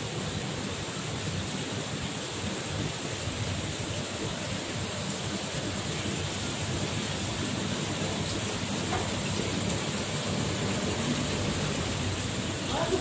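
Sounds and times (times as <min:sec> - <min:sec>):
water rushing through aquarium filters: 0:00.0 - 0:13.0.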